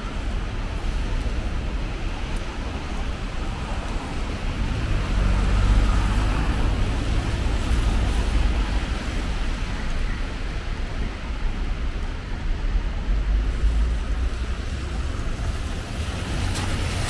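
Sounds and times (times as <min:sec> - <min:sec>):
passing car engines: 0:04.3 - 0:09.7.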